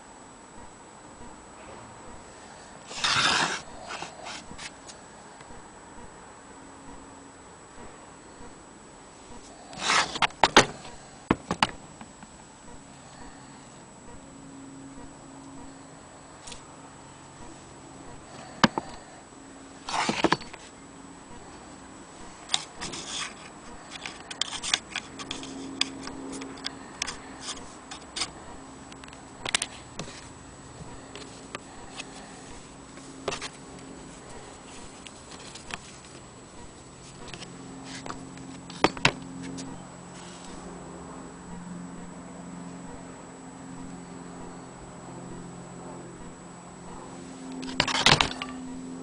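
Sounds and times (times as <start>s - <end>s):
faint low hum: 0.0s - 49.0s
rustle: 31.0s - 40.7s.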